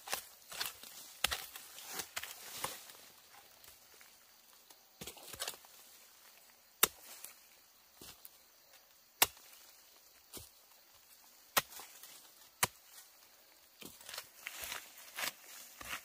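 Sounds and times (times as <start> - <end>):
digging tool striking ground: 0.0 - 2.9, 5.0 - 5.7, 6.8 - 7.4, 9.2 - 9.7, 11.5 - 13.0.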